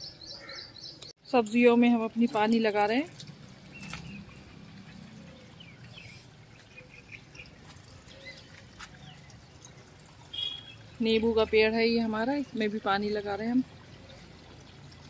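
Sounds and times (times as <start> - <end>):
water trickling onto soil: 1.4 - 15.0.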